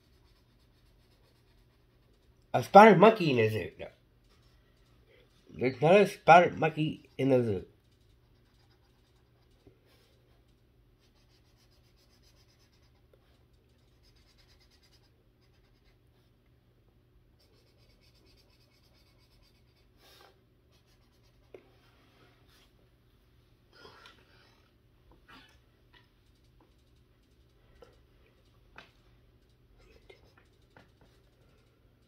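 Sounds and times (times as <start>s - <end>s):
marker scratching on paper: 0.0s - 2.7s, 5.6s - 10.4s, 11.0s - 16.3s, 17.4s - 22.7s.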